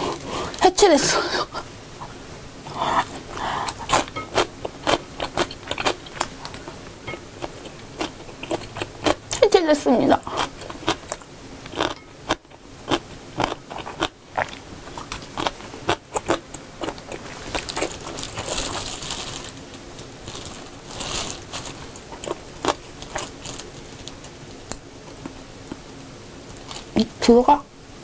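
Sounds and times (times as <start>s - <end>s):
chewing: 2.7s - 9.4s, 10.2s - 19.0s, 21.0s - 23.6s
plastic glove crinkling: 16.8s - 24.6s.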